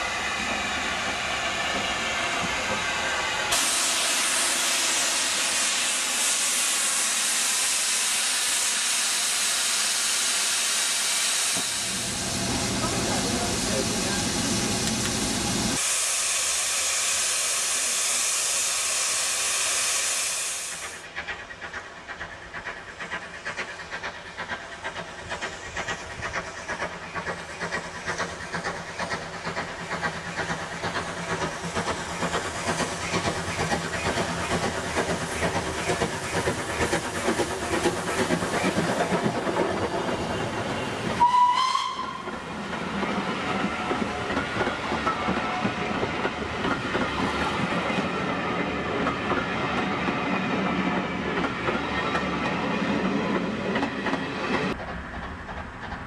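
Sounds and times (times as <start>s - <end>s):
rush of steam: 0.0s - 56.0s
steam locomotive hissing: 0.0s - 56.0s
steam train exhaust beats: 0.0s - 56.0s
train whistle blast: 41.2s - 42.4s.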